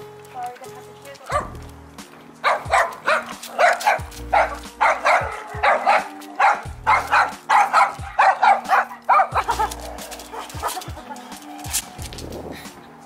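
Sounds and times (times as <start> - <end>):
dog barking rapidly: 1.3 - 1.6, 2.4 - 10.9.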